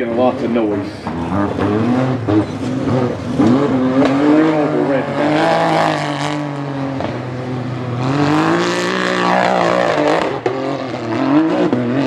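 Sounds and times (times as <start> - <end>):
race car engine revving: 0.0 - 12.0.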